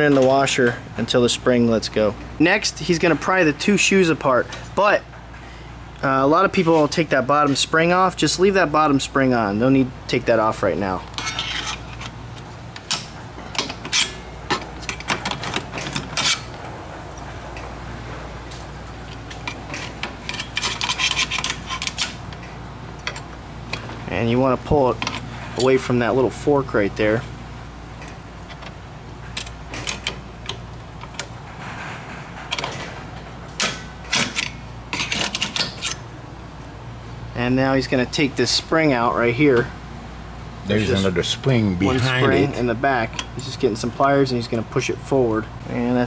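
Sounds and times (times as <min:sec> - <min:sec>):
screwdriver scraping metal brake parts: 0:11.1 - 0:12.2, 0:12.8 - 0:16.5, 0:19.4 - 0:22.2.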